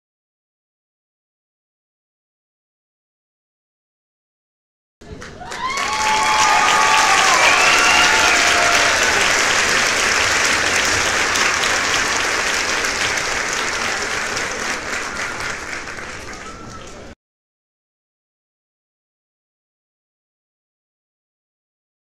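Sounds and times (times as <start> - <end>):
crowd applauding: 5.0 - 17.2
crowd whistles: 5.5 - 9.8, 14.4 - 17.2.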